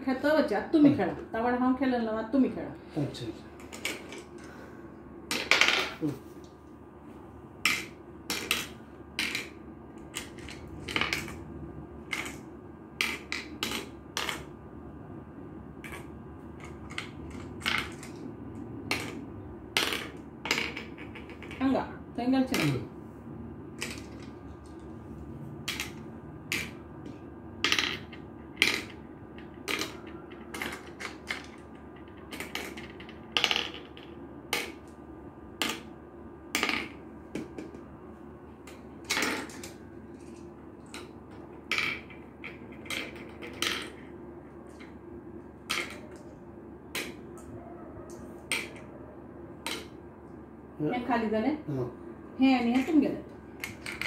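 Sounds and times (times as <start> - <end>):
marbles clicking on wooden board: 7.6 - 11.4, 12.1 - 12.4, 13.0 - 14.5, 15.8 - 18.2, 18.9 - 21.7, 25.7 - 26.8, 27.6 - 34.9, 35.6 - 35.9, 38.7 - 44.1, 45.7 - 46.2, 46.9 - 47.2, 48.5 - 48.9, 49.6 - 50.0, 53.6 - 54.0.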